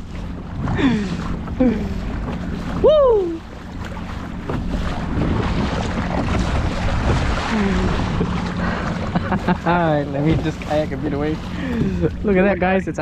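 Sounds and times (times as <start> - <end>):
water splashing along hull: 0.0 - 13.0.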